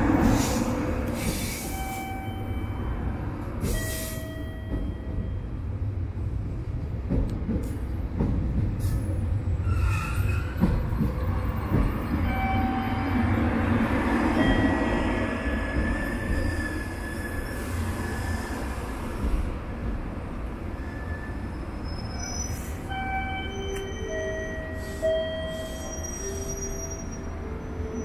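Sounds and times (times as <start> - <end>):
train wheels rumbling on rails: 0.0 - 28.0
high wheel squeals: 9.6 - 10.7, 20.8 - 28.0.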